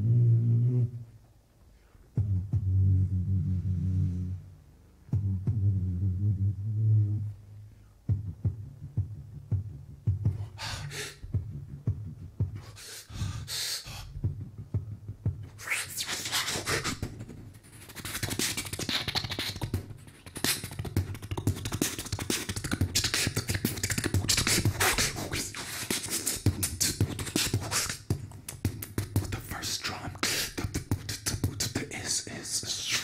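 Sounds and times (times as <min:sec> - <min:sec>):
beatboxing bass-drum pulses: 0:05.0 - 0:06.7, 0:08.0 - 0:33.0
beatboxing hissing cymbal sounds: 0:10.3 - 0:11.6, 0:12.5 - 0:33.0.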